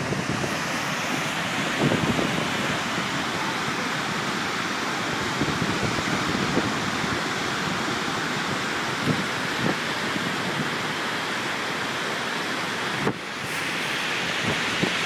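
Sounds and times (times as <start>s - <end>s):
wind bumps on microphone: 0.0s - 3.1s, 13.0s - 15.0s
whitewater roaring: 0.0s - 15.0s.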